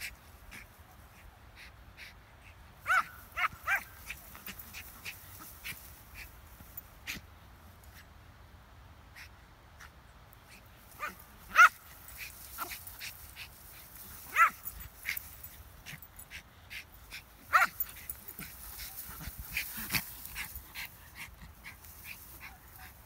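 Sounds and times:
dog barking high-pitched: 0:02.9 - 0:03.9, 0:11.0 - 0:11.8, 0:14.3 - 0:14.7, 0:17.5 - 0:17.8.

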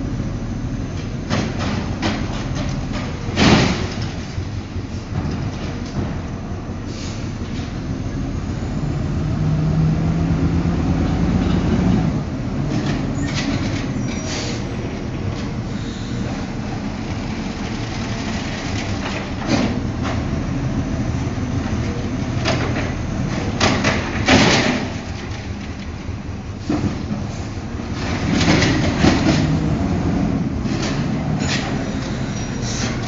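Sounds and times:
garbage truck engine running: 0:00.0 - 0:33.0
trash cart knocks and clatters: 0:01.0 - 0:06.3, 0:12.7 - 0:14.5, 0:17.9 - 0:20.3, 0:22.3 - 0:33.0.

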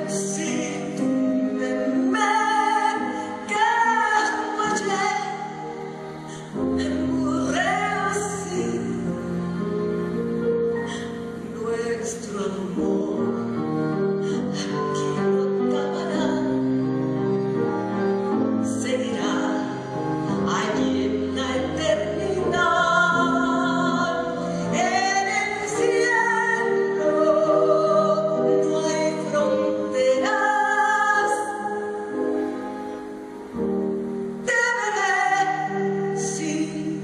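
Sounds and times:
sustained instrumental accompaniment: 0:00.0 - 0:34.5
person singing with vibrato: 0:00.0 - 0:37.0.

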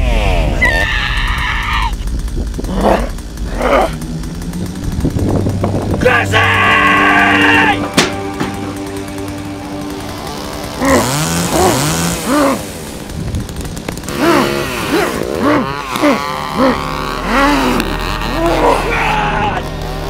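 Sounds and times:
chainsaw revving: 0:01.1 - 0:20.0.

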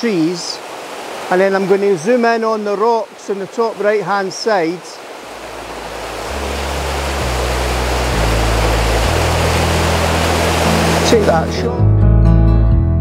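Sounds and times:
waterfall rushing: 0:00.0 - 0:11.8
low sustained music notes: 0:05.4 - 0:13.0.

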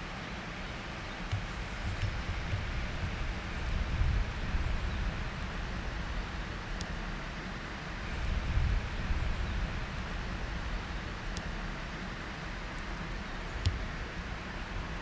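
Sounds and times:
wind rustling: 0:00.0 - 0:15.0
wind rumble on microphone: 0:01.0 - 0:15.0
faint sharp clicks: 0:01.2 - 0:02.7, 0:06.7 - 0:07.0, 0:11.2 - 0:11.6, 0:12.6 - 0:14.3.

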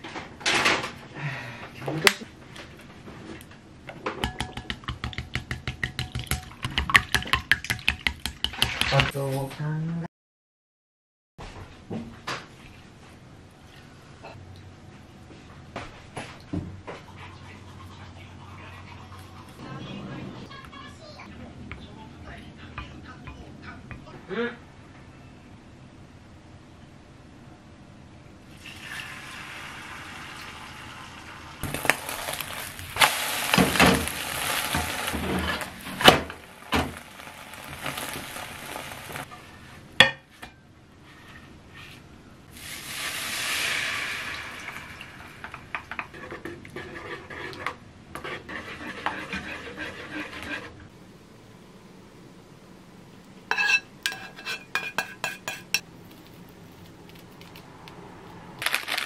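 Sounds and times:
spatula scraping and knocking: 0:04.3 - 0:09.1, 0:45.7 - 0:50.8, 0:53.5 - 0:57.6
sauce hissing in hot pan: 0:28.6 - 0:35.8, 0:42.5 - 0:45.4
egg sizzling in a frying pan: 0:28.6 - 0:39.3, 0:42.5 - 0:46.1
spatula clinking on pan: 0:53.5 - 0:55.8.

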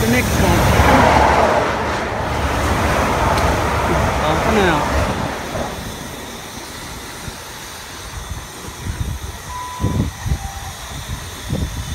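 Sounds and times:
diesel train rumbling: 0:00.0 - 0:11.9
short beep: 0:09.5 - 0:10.7.

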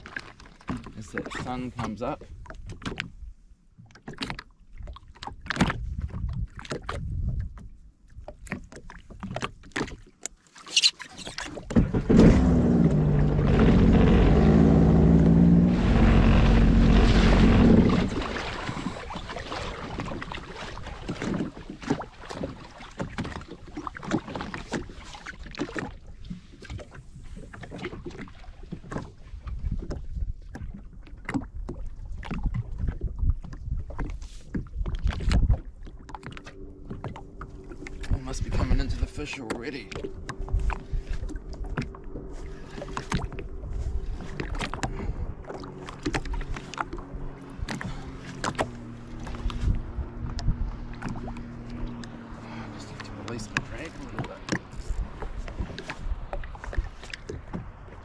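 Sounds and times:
jet ski engine running: 0:11.6 - 0:24.9, 0:35.1 - 0:58.0.

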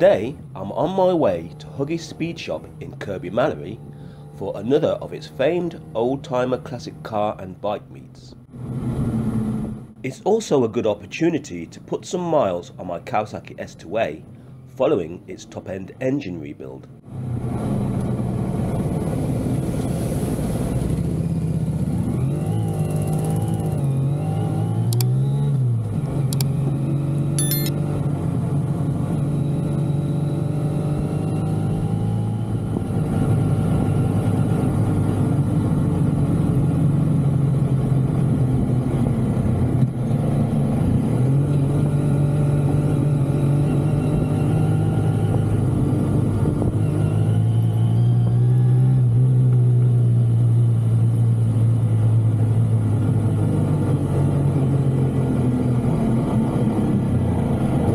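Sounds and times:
motorcycle engine revving: 0:21.0 - 0:28.4, 0:29.2 - 0:39.0.

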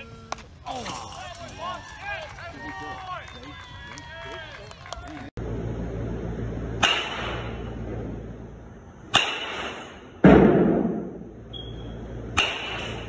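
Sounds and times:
steady low hum: 0:05.1 - 0:13.0
baseball bat striking balls: 0:06.7 - 0:08.2, 0:09.0 - 0:13.0.

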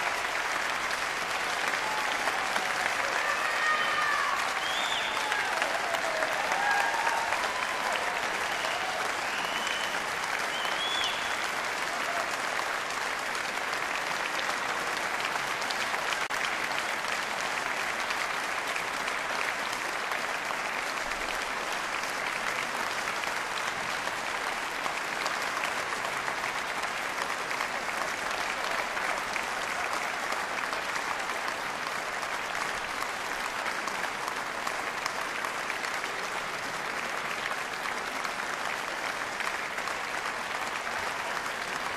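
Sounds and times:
audience applauding: 0:00.0 - 0:41.9
people whooping: 0:01.5 - 0:12.4.

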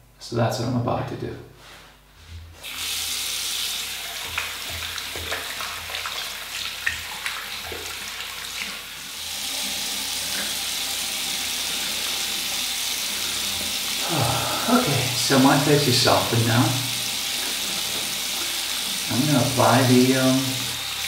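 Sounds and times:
tap water running into sink: 0:02.6 - 0:21.0
water splashing on face: 0:03.8 - 0:08.8.

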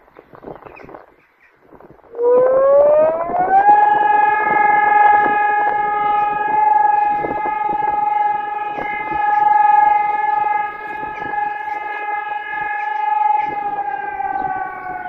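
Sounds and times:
siren wailing: 0:02.0 - 0:15.0.

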